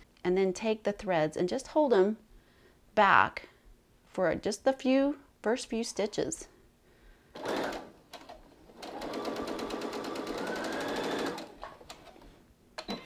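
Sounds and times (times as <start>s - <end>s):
sewing machine stitching: 7.4s - 12.3s.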